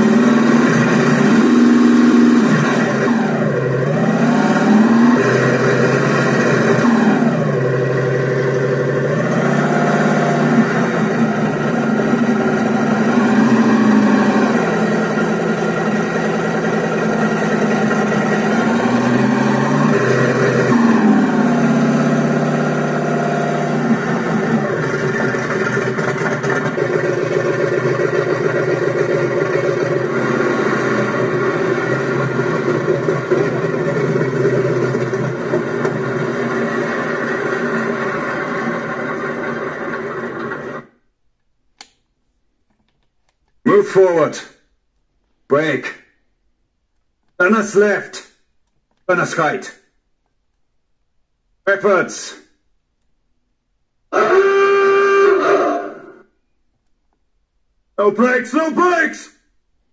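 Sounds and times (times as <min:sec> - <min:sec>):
simulated tank engine revving: 0:00.0 - 0:41.1, 0:54.1 - 0:56.4.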